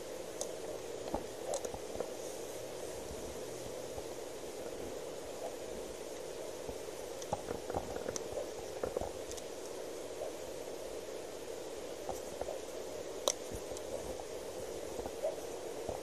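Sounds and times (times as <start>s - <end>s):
steady background hiss: 0.0s - 16.0s.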